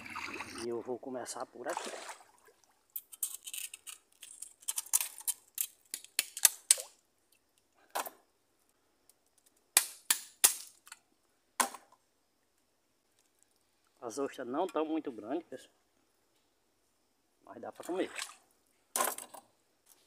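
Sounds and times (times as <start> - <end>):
sharp snaps and crackles: 2.9 - 7.8, 8.6 - 11.0.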